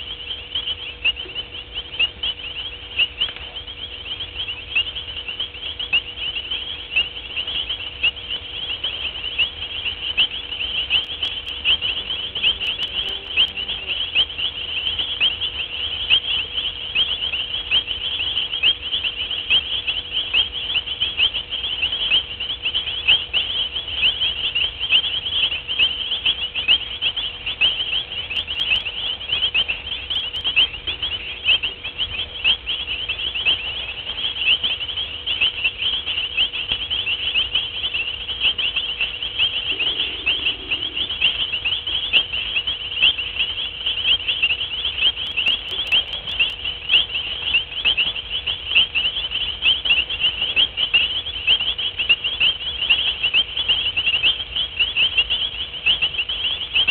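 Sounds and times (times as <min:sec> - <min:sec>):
night insects trilling: 0:00.0 - 0:56.9.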